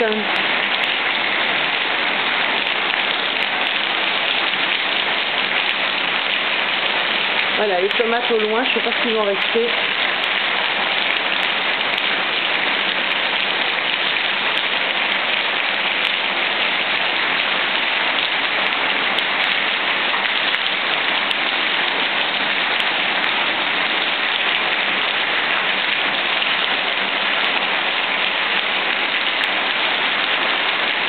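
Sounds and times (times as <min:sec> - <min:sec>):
heavy rain and hail: 0:00.0 - 0:31.0.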